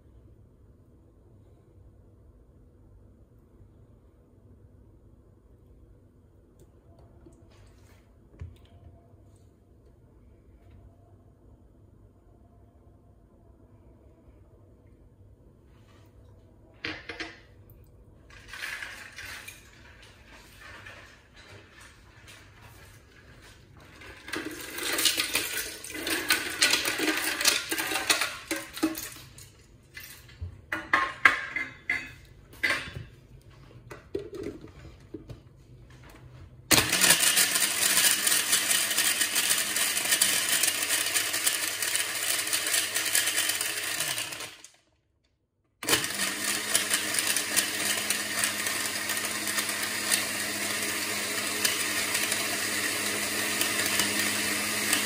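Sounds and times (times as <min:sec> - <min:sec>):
blender crushing ice: 0:18.3 - 0:19.6, 0:24.0 - 0:29.2, 0:36.7 - 0:44.8, 0:45.8 - 0:55.0
blender motor running at high speed: 0:36.7 - 0:44.6, 0:45.8 - 0:55.0.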